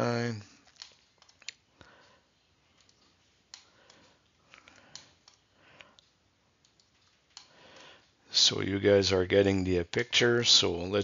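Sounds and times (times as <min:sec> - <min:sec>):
computer mouse clicks: 0:00.6 - 0:08.2.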